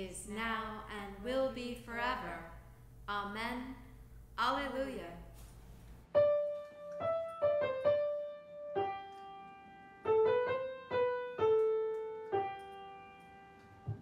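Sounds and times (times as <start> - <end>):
slow piano melody and chords: 6.0 - 14.0.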